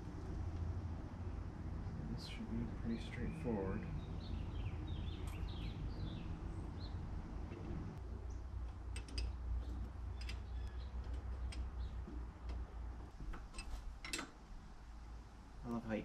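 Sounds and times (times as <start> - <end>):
low steady hum: 0.0 - 16.0
birds chirping: 1.2 - 13.0.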